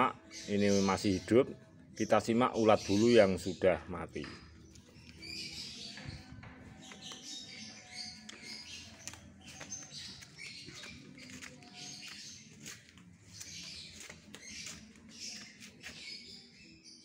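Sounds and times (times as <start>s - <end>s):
high-pitched chirping and squeaking: 4.6s - 16.8s.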